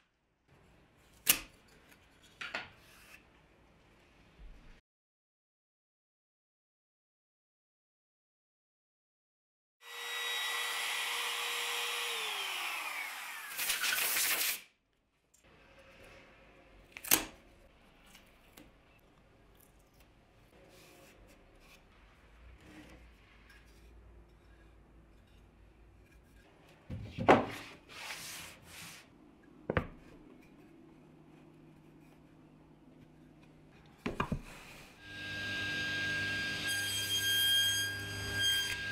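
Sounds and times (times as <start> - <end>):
router motor running: 9.8 - 13.6
wooden block sliding on table: 27.2 - 29.1
rough brushing noise: 27.5 - 29.1.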